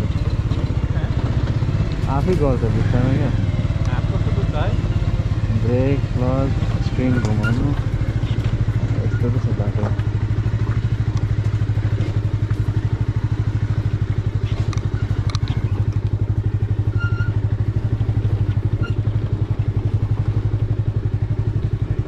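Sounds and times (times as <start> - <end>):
light rattles and clicks: 0.0 - 2.7, 6.5 - 12.8, 13.7 - 16.2
motorcycle engine running: 0.0 - 22.0.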